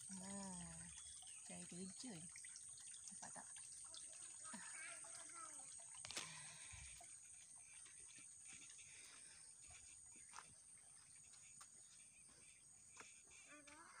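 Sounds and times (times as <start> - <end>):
high-pitched insect drone: 4.5 - 14.0.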